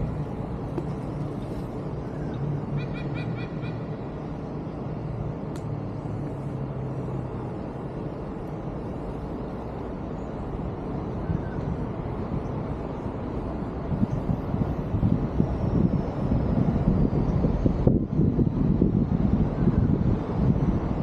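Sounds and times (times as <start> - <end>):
traffic rumble: 0.0 - 21.0
wind on microphone: 0.0 - 21.0.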